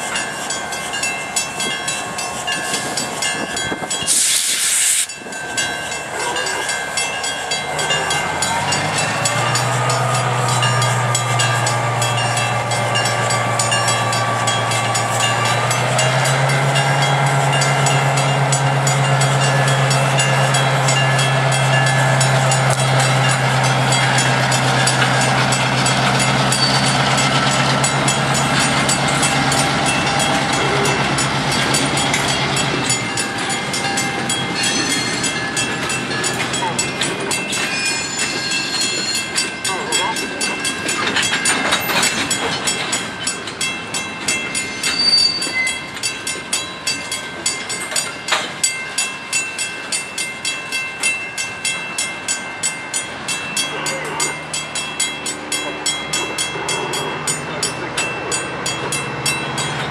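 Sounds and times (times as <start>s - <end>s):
diesel locomotive engine drone: 0.0s - 59.9s
train cars rolling over rails: 0.0s - 59.9s
air hiss: 4.0s - 5.2s.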